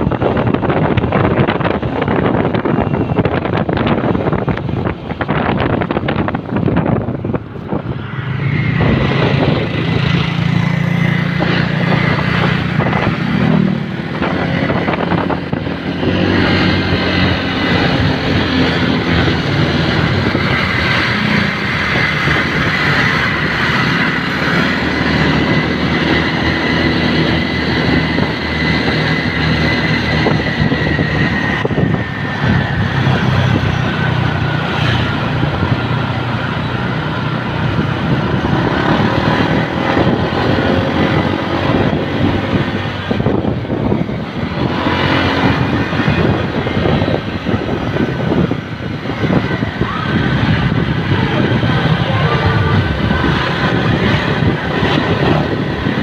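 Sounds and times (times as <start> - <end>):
motorcycle engine running: 0.0 - 56.0
road and wind noise: 0.0 - 56.0
steady high whine: 0.0 - 56.0.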